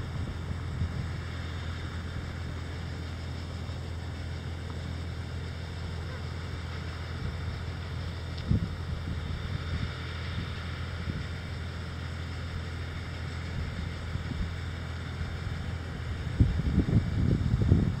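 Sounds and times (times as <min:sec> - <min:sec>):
wind rumbling on microphone: 0:00.0 - 0:02.7, 0:07.1 - 0:11.6, 0:13.4 - 0:18.0
harvester engine humming: 0:00.0 - 0:18.0.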